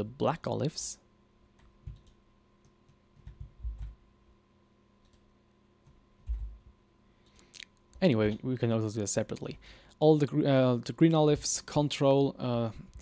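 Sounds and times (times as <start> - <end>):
computer mouse clicks: 1.6 - 4.0, 5.0 - 6.5.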